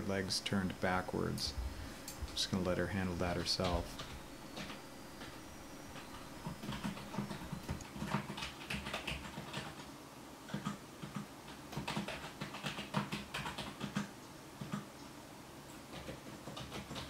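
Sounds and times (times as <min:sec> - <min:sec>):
typing on computer keyboard: 0:06.0 - 0:09.9, 0:10.5 - 0:14.9, 0:15.9 - 0:17.0.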